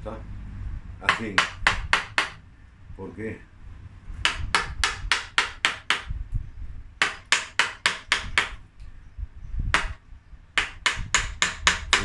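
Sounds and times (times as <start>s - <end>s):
hammer and chisel on wood: 1.0s - 2.4s, 4.2s - 6.1s, 7.0s - 8.6s, 9.7s - 10.0s, 10.6s - 12.0s.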